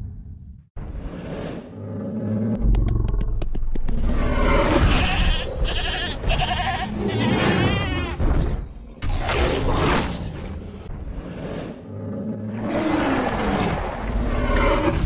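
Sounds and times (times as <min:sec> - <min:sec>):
dinosaur roar: 0:01.7 - 0:03.4, 0:11.4 - 0:15.0.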